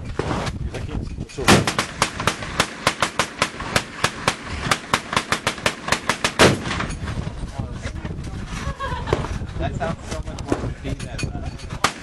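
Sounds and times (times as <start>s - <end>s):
gatling gun firing: 1.5s - 7.0s.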